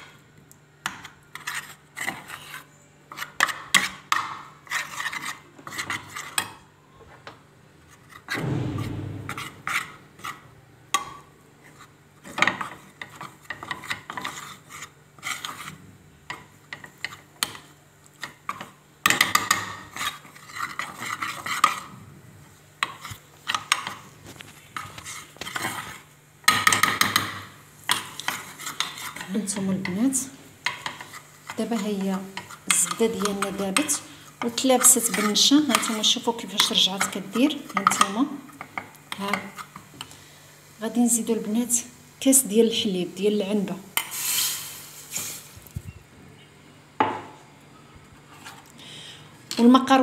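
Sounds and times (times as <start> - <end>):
dull low bump: 8.4 - 9.7
metal spoon scraping saucepan: 30.8 - 38.2.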